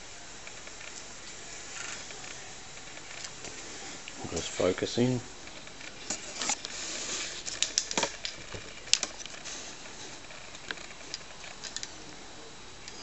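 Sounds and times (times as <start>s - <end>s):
faint hiss: 0.0s - 13.0s.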